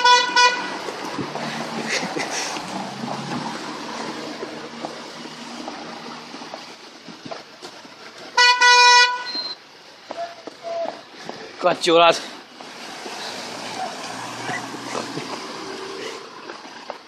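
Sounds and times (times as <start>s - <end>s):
vehicle horn toot: 0.0s - 0.7s, 8.4s - 9.6s
passing traffic: 0.0s - 17.0s.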